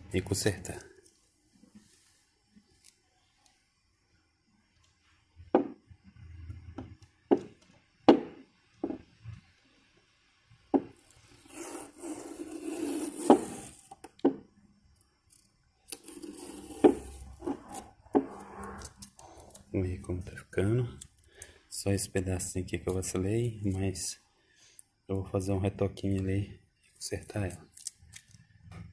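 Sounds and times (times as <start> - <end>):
knocks and taps on plastic: 5.5 - 5.8, 6.8 - 9.1
masking tape peeling: 11.0 - 13.9, 15.3 - 19.8, 27.4 - 28.4.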